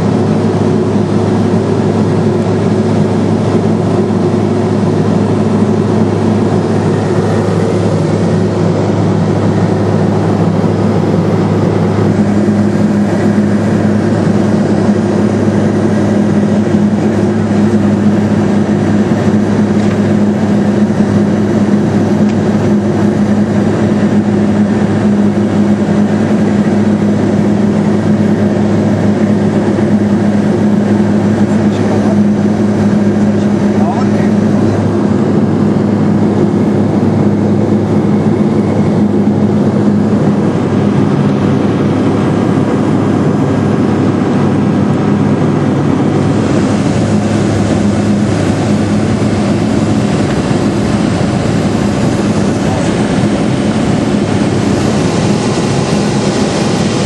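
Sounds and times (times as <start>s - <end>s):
turboprop engine drone: 0.0s - 57.0s.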